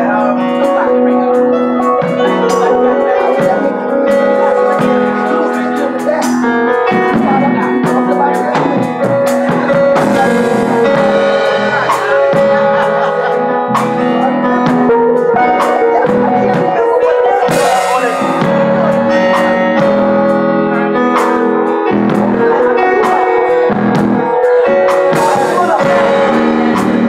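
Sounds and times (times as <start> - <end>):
electric guitar: 0.0 - 27.0
keyboard: 0.0 - 27.0
drum beat: 1.8 - 20.5, 21.2 - 27.0.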